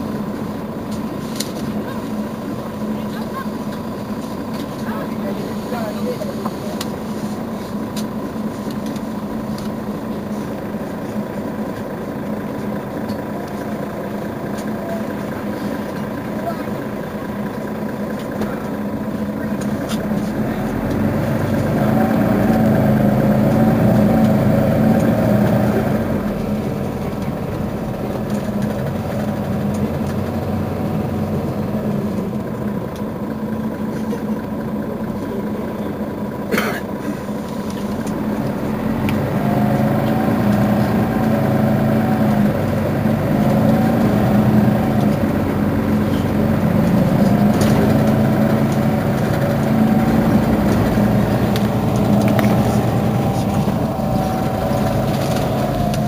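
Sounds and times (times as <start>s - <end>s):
bus engine idling: 0.0s - 56.0s.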